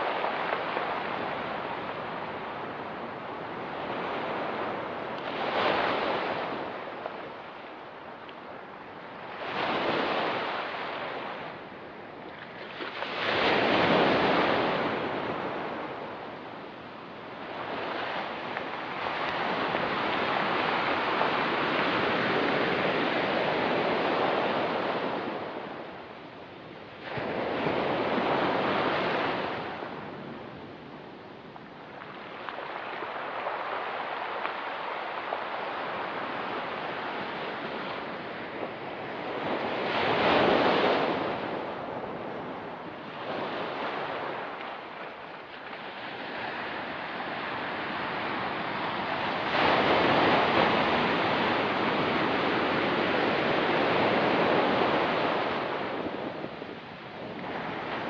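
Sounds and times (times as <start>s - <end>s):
waves breaking on rocky beach: 31.7s - 58.0s.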